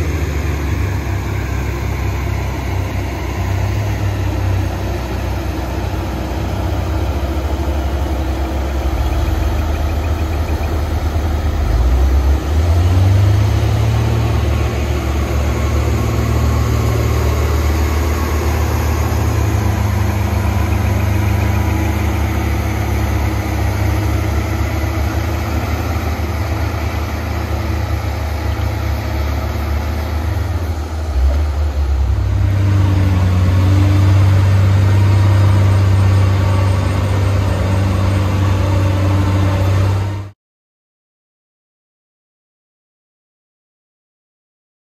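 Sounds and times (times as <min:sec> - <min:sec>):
diesel engine running: 0:00.0 - 0:40.4.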